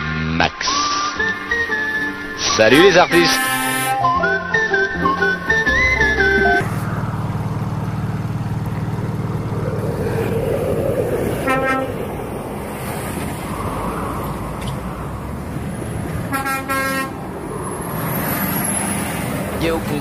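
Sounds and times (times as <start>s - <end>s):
truck horn blasts: 2.5s - 6.8s, 16.2s - 17.2s
truck engine running: 3.4s - 20.0s.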